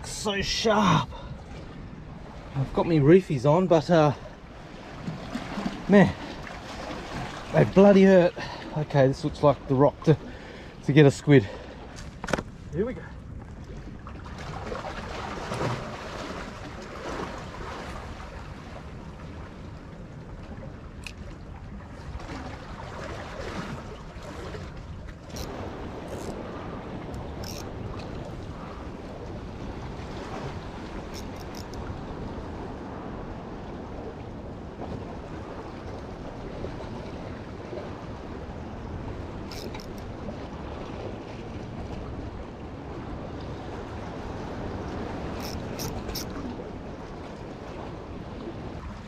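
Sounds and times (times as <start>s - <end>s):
surf washing against rocks: 0.0s - 1.4s, 2.2s - 13.0s
small waves on rocky shore: 0.0s - 49.0s
wind rumbling on microphone: 0.0s - 49.0s.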